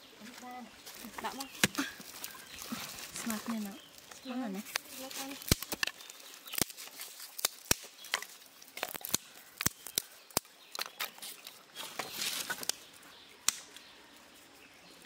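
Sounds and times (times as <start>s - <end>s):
rustling: 0.2s - 10.1s, 10.8s - 13.1s
sticks clicking on stones: 4.7s - 12.8s.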